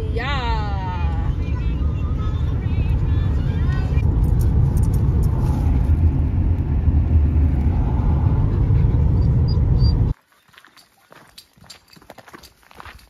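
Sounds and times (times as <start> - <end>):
car tyres and engine rumbling: 0.0 - 10.2.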